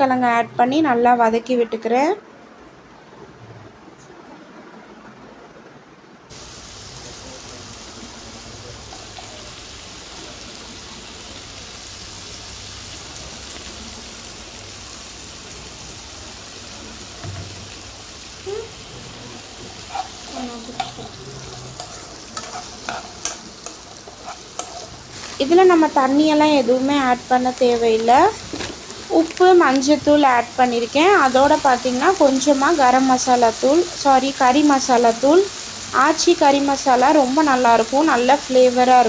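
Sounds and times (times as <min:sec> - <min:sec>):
potatoes sizzling in oil: 0:06.3 - 0:39.0
spoon clacking and scraping pan: 0:19.8 - 0:25.5.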